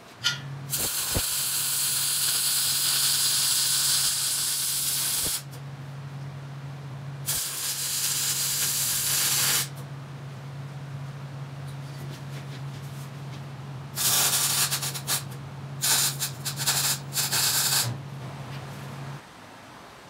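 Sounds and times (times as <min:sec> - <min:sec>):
steady low hum: 0:00.0 - 0:20.0
welding arc crackling hiss: 0:00.7 - 0:05.6, 0:07.2 - 0:09.8, 0:14.0 - 0:18.0.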